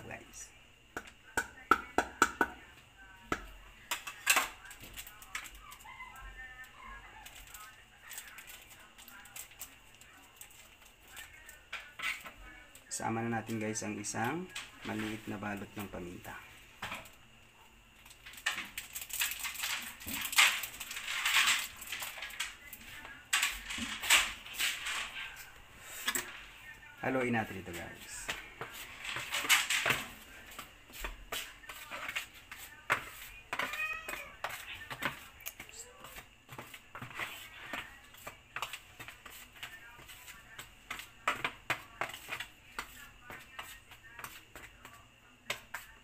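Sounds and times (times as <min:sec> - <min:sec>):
plastic sachet crinkling: 0:18.0 - 0:22.8.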